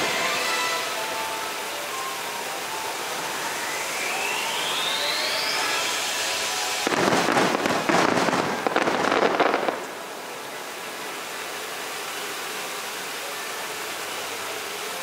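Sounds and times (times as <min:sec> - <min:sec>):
firework rising whistle: 0:00.0 - 0:10.1
fireworks crackling: 0:00.0 - 0:15.0.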